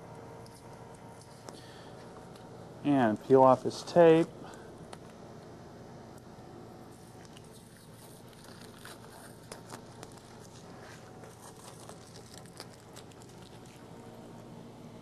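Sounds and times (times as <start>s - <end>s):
tape peeling crackle: 7.2s - 14.0s.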